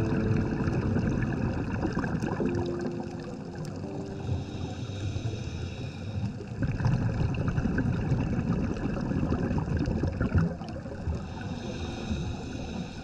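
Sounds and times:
muffled underwater bubbles rumble: 0:00.0 - 0:13.0.

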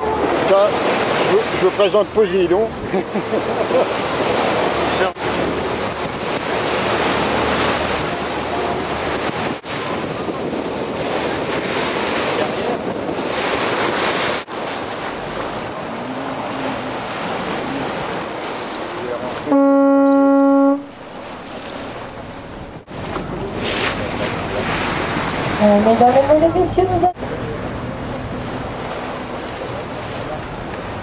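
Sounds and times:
water rushing along boat hull: 0:00.0 - 0:31.0
wind buffeting microphone: 0:03.9 - 0:19.4.

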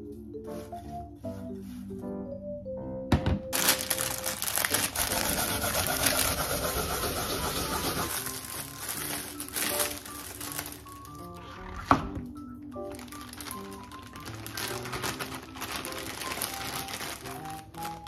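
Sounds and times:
soft background music: 0:00.0 - 0:18.0.

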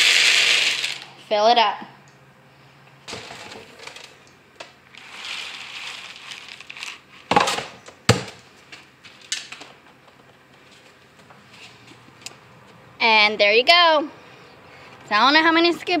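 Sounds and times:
feed pellets pouring into feeder: 0:00.0 - 0:01.0, 0:05.0 - 0:07.0.

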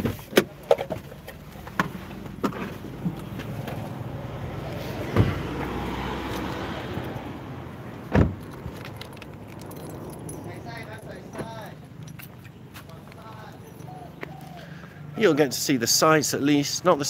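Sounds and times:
low hum and outdoor noise: 0:00.0 - 0:17.0
car door shutting thump: 0:05.1 - 0:05.4, 0:08.1 - 0:08.4
car door clicks and knocks: 0:08.1 - 0:09.0.

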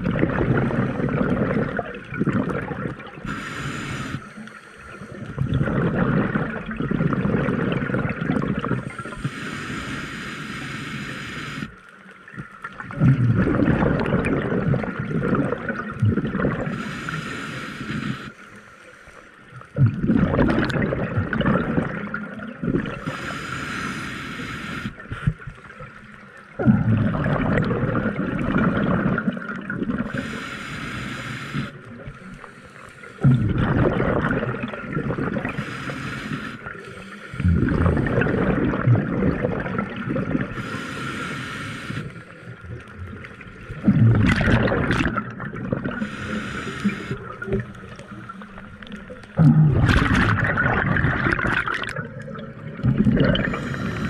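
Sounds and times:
exhaled bubbles gurgling: 0:00.0 - 0:18.4, 0:19.5 - 0:54.0
regulator inhale hiss: 0:03.2 - 0:05.4, 0:08.8 - 0:11.9, 0:16.7 - 0:19.5, 0:23.0 - 0:26.1, 0:30.1 - 0:33.2, 0:35.4 - 0:38.1, 0:40.5 - 0:42.6, 0:46.0 - 0:48.4, 0:53.4 - 0:54.0.

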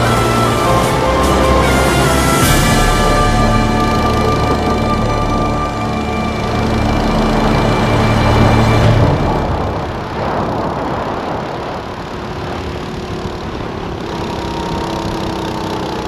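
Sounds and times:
background music: 0:00.0 - 0:10.8
go-kart engine running hard: 0:00.0 - 0:16.0.

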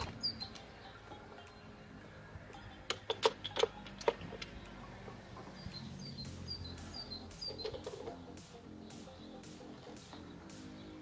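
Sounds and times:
hand tools clicking and clinking: 0:02.5 - 0:05.5, 0:07.5 - 0:08.3.

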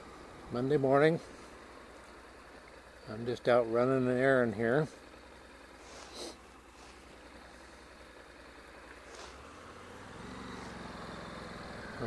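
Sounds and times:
motorcycle engine idling: 0:00.0 - 0:12.0
brief rustles: 0:09.0 - 0:09.4.

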